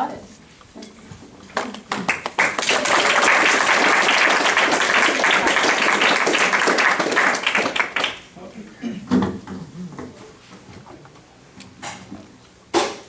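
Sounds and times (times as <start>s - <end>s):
audience applauding: 1.6s - 8.3s.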